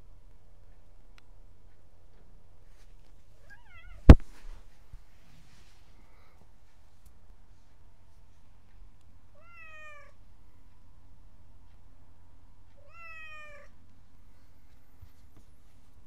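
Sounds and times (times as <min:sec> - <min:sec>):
cat meowing: 0:03.4 - 0:04.1, 0:09.4 - 0:10.2, 0:12.8 - 0:13.8.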